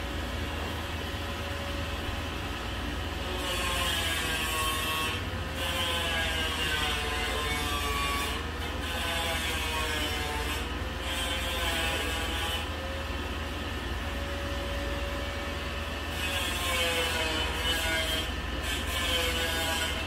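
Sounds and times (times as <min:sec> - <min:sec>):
power tool whine: 0:14.2 - 0:20.0.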